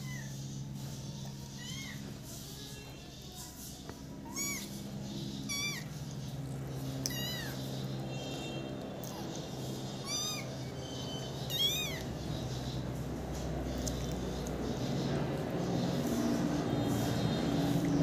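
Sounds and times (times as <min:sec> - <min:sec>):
kittens meowing: 0:00.0 - 0:00.6, 0:01.2 - 0:02.1, 0:04.2 - 0:06.0, 0:06.7 - 0:12.3.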